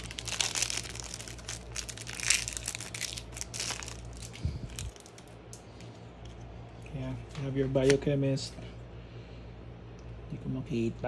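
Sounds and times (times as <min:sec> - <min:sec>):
plastic wrapper being torn open: 0:00.0 - 0:05.6.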